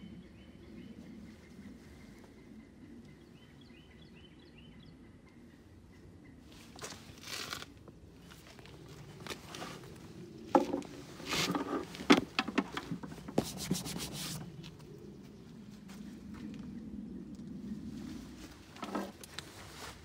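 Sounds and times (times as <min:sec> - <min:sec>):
sharp clicks and knocks: 0:11.5 - 0:13.6.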